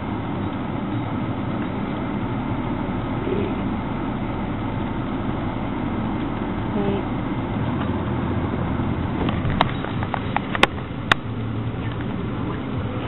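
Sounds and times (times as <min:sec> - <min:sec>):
car engine and road noise: 0:00.0 - 0:13.0.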